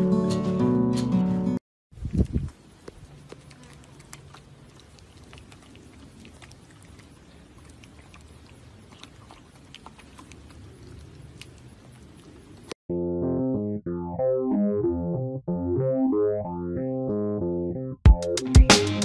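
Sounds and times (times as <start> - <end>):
horses' lips smacking: 2.0 - 12.8.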